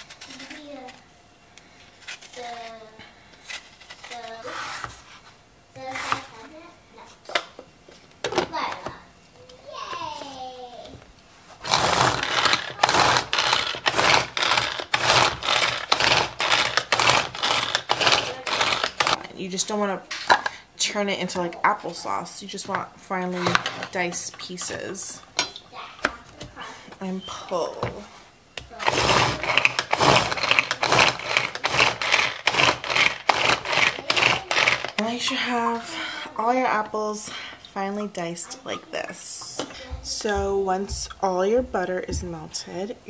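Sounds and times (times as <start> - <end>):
food chopper blades whirring: 11.6 - 19.2, 28.7 - 36.4.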